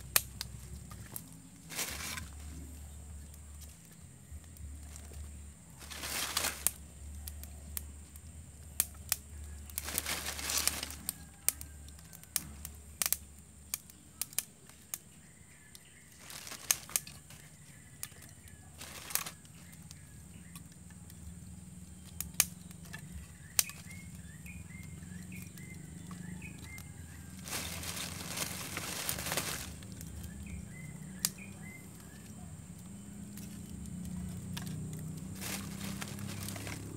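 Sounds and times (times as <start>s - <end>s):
plastic bag rustling: 0.0s - 2.9s, 4.8s - 6.8s, 9.8s - 11.1s, 16.1s - 19.7s, 26.1s - 30.8s, 34.2s - 36.9s
charcoal lumps being handled: 0.0s - 36.9s
small birds chirping: 0.0s - 36.9s
wood fire crackling and popping: 0.0s - 36.9s.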